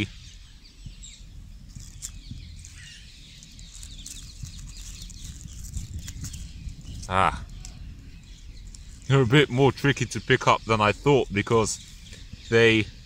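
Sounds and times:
dry leaves rustling and crackling: 1.7 - 6.7.

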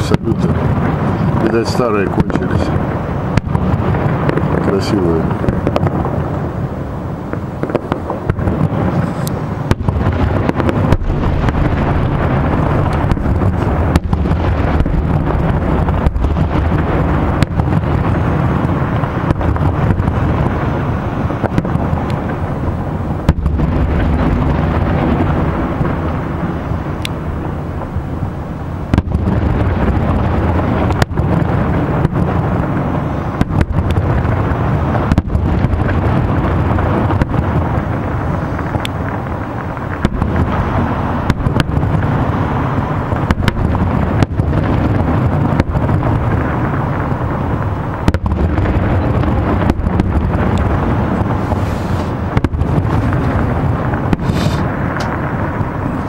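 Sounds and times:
fireworks bursting with sharp bangs: 0.0 - 56.0.

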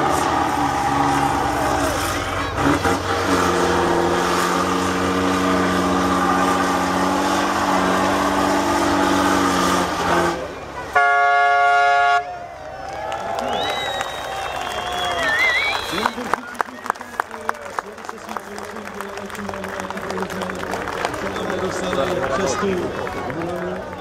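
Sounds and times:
truck diesel engine labouring: 0.0 - 24.0
horn blaring: 2.4 - 12.5.

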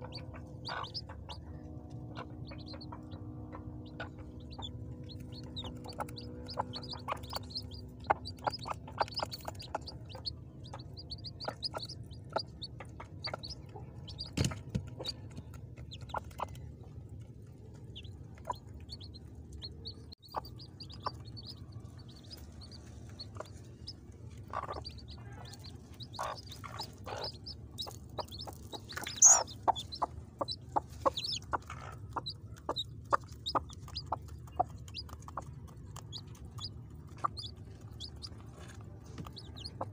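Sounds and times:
chicks peeping: 0.0 - 39.9
hen clucking: 0.0 - 39.9.

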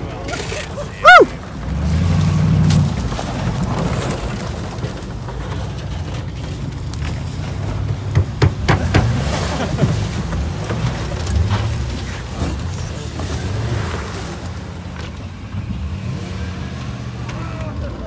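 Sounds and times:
car engines racing past: 0.0 - 18.0
sharp knocks: 8.1 - 9.2.

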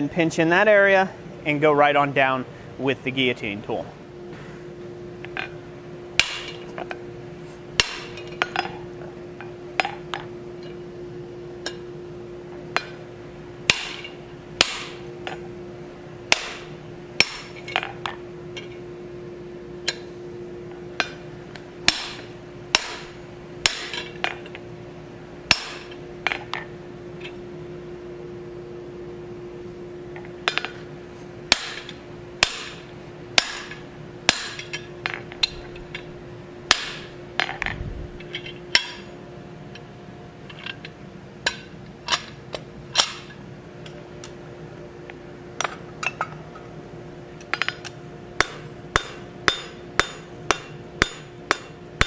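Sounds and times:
steady hum: 0.0 - 52.0
hammer striking hot steel: 6.2 - 6.7, 7.8 - 8.8, 12.7 - 13.0, 13.6 - 15.4, 16.3 - 17.9, 21.0 - 21.2, 21.8 - 24.4, 25.5 - 26.5, 31.5 - 36.1, 36.7 - 37.6, 38.7 - 39.1, 41.4 - 43.4, 47.5 - 52.0.

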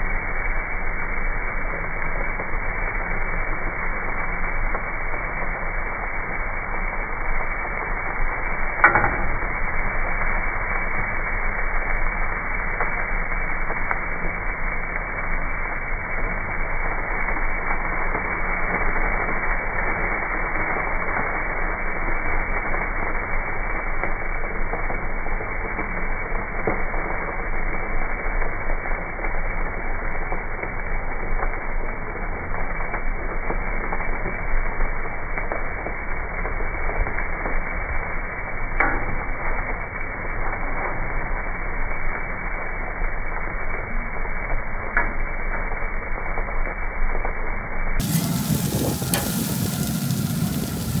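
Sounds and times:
steak sizzling on a grill: 0.0 - 51.0
spatula striking grill grate: 8.8 - 9.6, 48.0 - 50.8.

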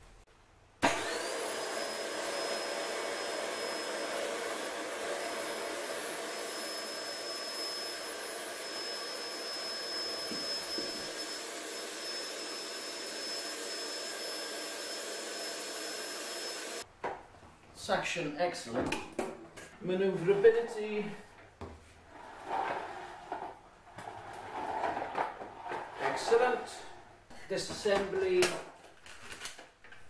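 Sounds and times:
vacuum cleaner motor whine: 0.8 - 16.8
hose sweeping floor: 1.1 - 16.8, 21.1 - 26.5.

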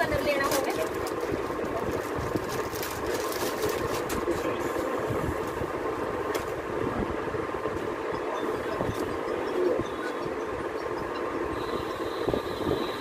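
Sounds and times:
mechanical hum and rumble: 0.0 - 13.0.

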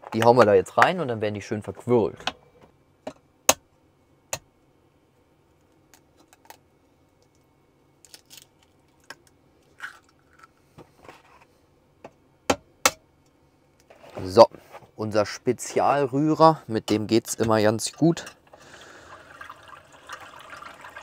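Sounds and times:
eggshells cracking: 8.0 - 10.5
shells crackling apart: 8.0 - 10.5.

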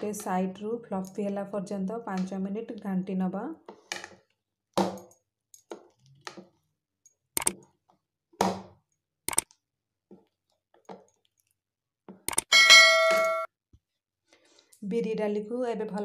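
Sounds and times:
ringing chime sound effect: 12.5 - 13.5.

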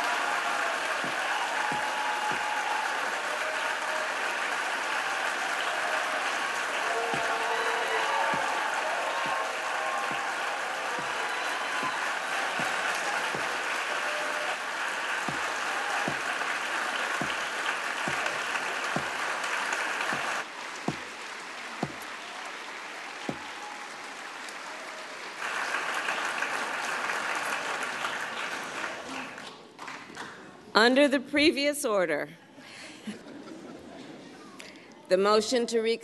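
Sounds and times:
crowd applauding: 0.0 - 30.4
single thumps: 1.0 - 2.6, 7.1 - 7.4, 8.1 - 13.7, 15.2 - 16.5, 17.1 - 19.3, 20.1 - 21.2, 21.8 - 22.1, 23.3 - 23.6.

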